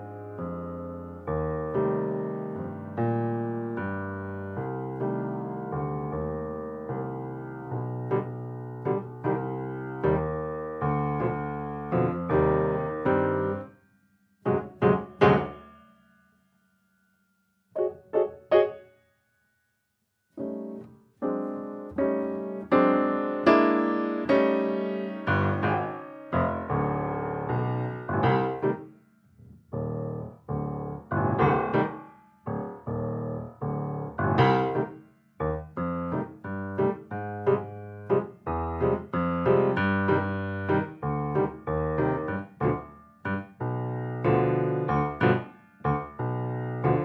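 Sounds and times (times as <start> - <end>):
solo piano music: 0.0 - 13.7, 14.4 - 16.4, 17.7 - 19.1, 20.3 - 47.0.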